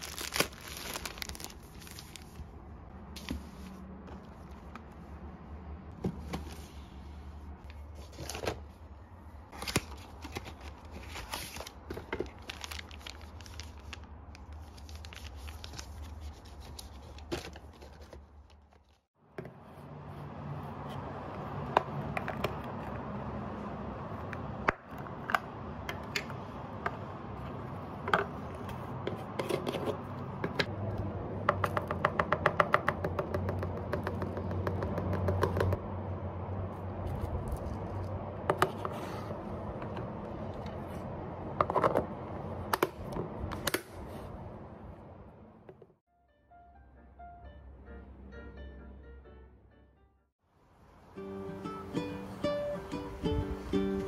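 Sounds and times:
packets rustling and clicking: 0.0s - 2.4s.

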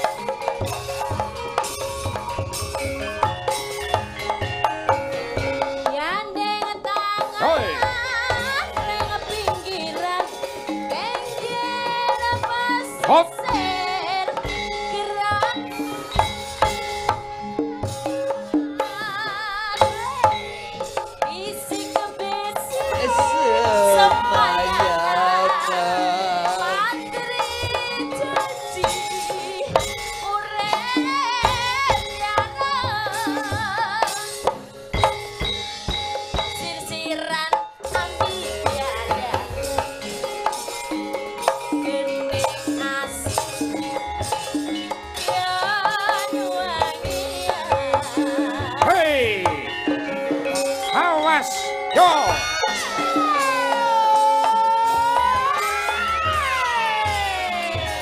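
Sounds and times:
gamelan music: 0.0s - 58.0s
metallophone tones: 0.0s - 58.0s
woman singing: 5.8s - 16.4s, 18.5s - 34.6s, 36.3s - 40.7s, 41.4s - 44.0s, 44.6s - 49.0s, 52.4s - 58.0s.

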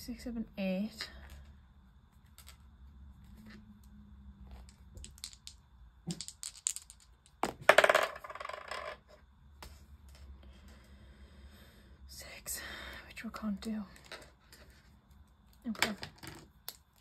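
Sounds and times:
dice clattering on a desk: 2.2s - 2.7s, 4.4s - 10.3s, 13.6s - 14.8s, 15.5s - 17.0s
dice rattling in a hand: 4.5s - 9.2s.

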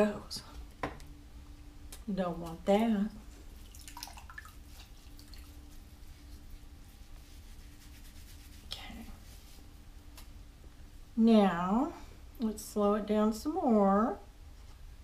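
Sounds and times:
wet drips and clicks: 3.6s - 5.6s.

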